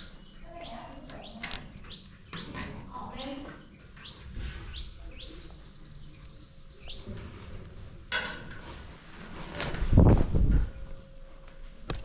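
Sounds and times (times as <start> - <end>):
birds chirping: 0.0 - 8.1.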